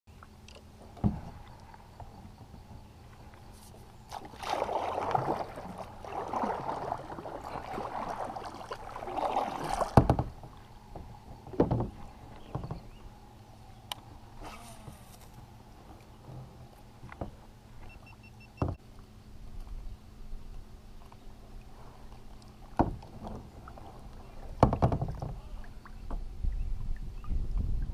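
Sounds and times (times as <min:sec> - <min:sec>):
paddle strokes splashing in water: 0:00.8 - 0:13.1, 0:21.0 - 0:26.2.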